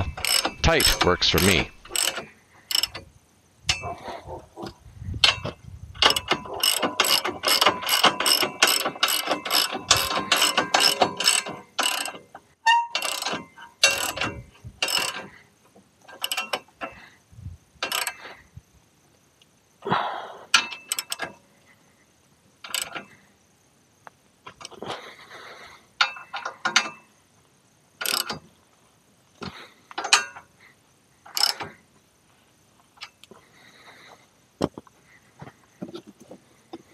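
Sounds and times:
ratchet clicking: 0.0s - 3.1s, 5.3s - 12.2s, 13.0s - 15.2s, 17.8s - 18.2s, 20.6s - 21.4s, 22.7s - 23.0s, 28.0s - 28.4s, 31.3s - 31.7s.

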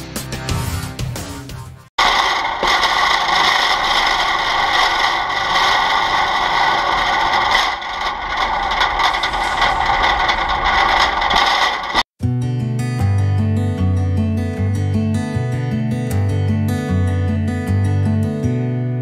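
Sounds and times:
shopping cart wheels rolling: 2.0s - 12.1s.

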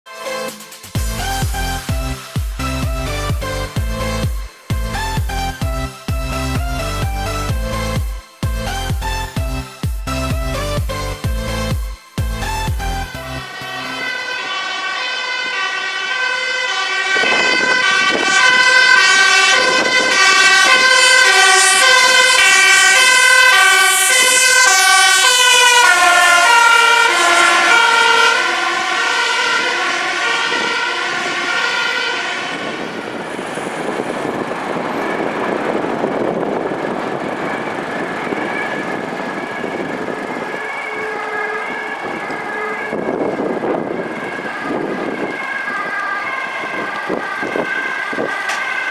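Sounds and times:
two-tone emergency sirens: 0.1s - 48.9s
passing road traffic hiss: 29.9s - 48.9s.

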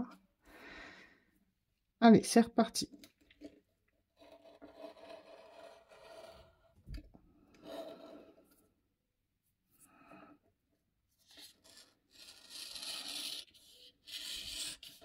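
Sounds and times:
blade scraping through paper: 11.3s - 15.0s.

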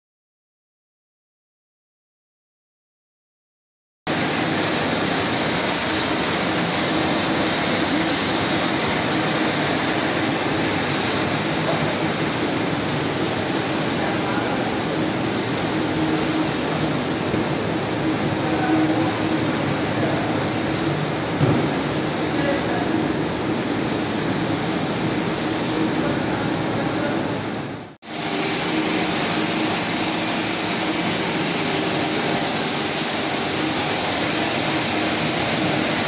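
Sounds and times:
machine fans whirring: 4.1s - 36.0s
brief knock: 21.4s - 21.8s.

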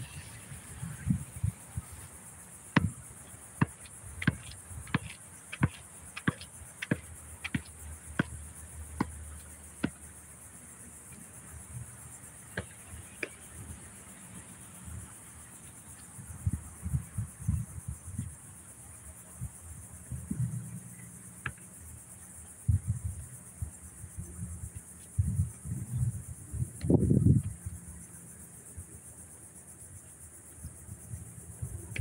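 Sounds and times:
basketball bouncing on concrete: 2.8s - 3.0s, 3.6s - 9.2s.

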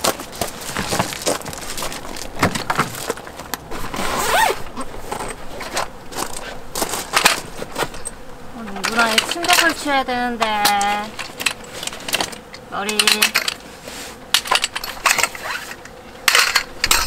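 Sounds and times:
footsteps crunching on gravel: 0.0s - 8.1s
camping gear being handled: 0.0s - 9.8s, 10.4s - 17.0s.

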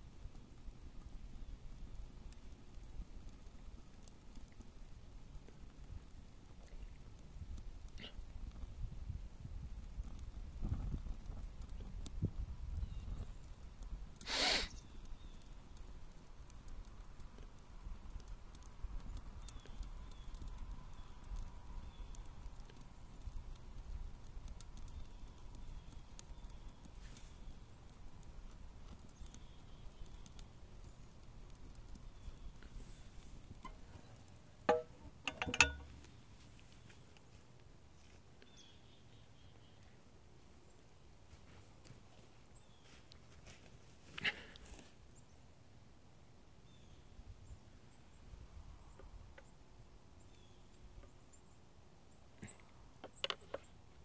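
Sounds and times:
fire crackling and popping: 0.0s - 54.0s
loud hiss: 14.2s - 14.8s
sharp knocks with ringing: 34.7s - 35.9s.

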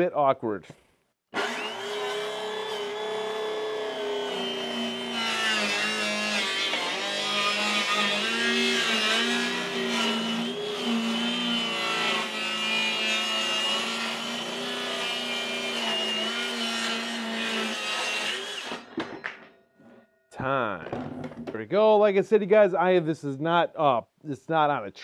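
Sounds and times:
circular saw cutting wood: 1.3s - 18.9s.

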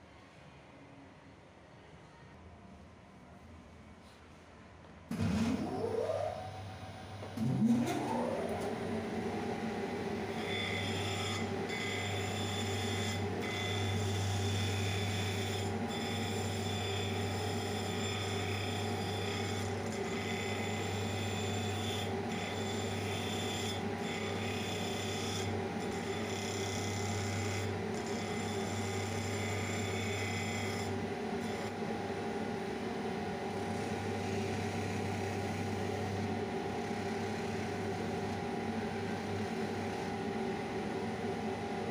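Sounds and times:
sanding machine motor hum: 5.9s - 41.9s.

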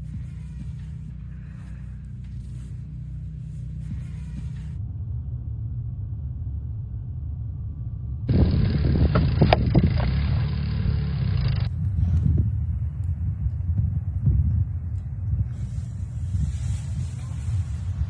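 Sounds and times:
car driving on snowy road: 0.0s - 4.8s, 8.2s - 12.5s.

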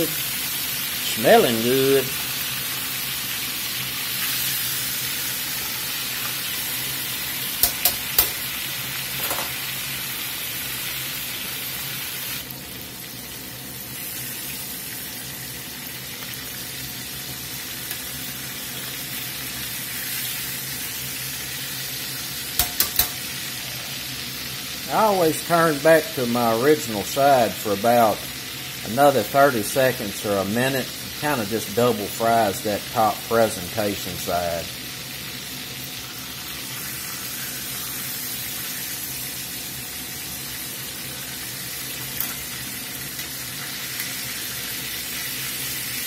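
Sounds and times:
steaks sizzling in oil: 0.0s - 32.2s, 34.6s - 46.0s
metal tongs clicking: 7.6s - 8.4s, 22.6s - 23.3s.

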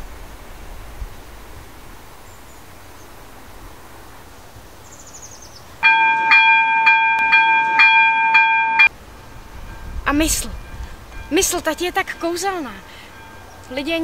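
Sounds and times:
pulsing chord of steady tones: 5.8s - 14.0s.

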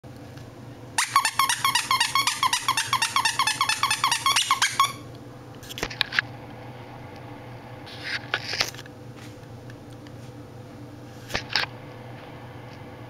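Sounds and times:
puppy yapping: 1.0s - 5.1s.

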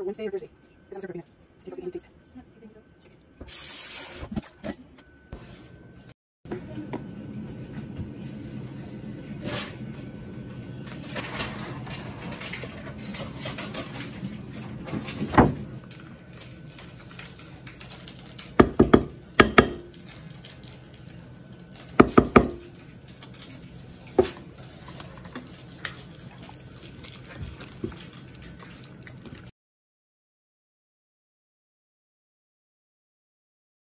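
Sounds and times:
wooden spoon knocking on bowl: 18.6s - 19.9s, 22.0s - 22.7s.

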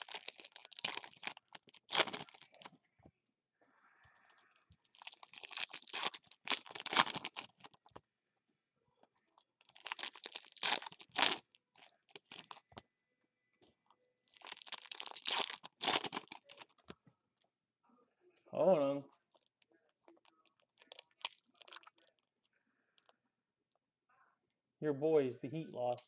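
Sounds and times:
foil wrappers tearing and crinkling: 0.0s - 2.7s, 4.8s - 7.8s, 9.7s - 12.6s, 14.3s - 16.8s, 19.2s - 22.1s.

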